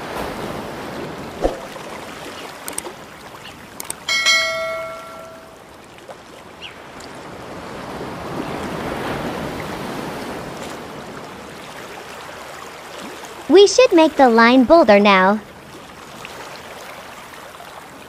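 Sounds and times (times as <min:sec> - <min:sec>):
click: 0:02.6 - 0:02.9, 0:03.8 - 0:04.1
bell-like chime: 0:04.1 - 0:05.6.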